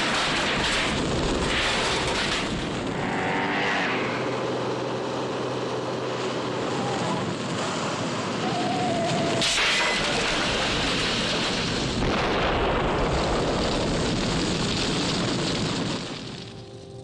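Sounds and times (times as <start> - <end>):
rumble of fire: 0.0 - 17.0
car explosion blast: 9.4 - 16.5.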